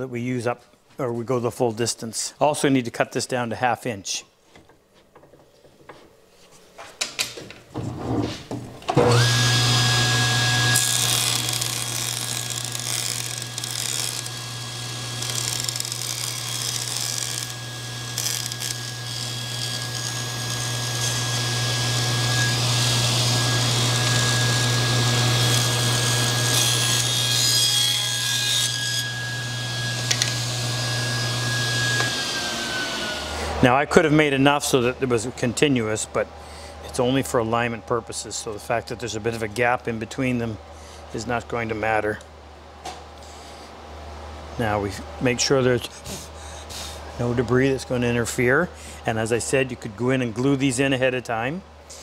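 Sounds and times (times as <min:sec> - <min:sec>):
table saw running: 0:08.9 - 0:33.6
saw cutting wood hiss: 0:09.1 - 0:27.3, 0:45.8 - 0:47.1.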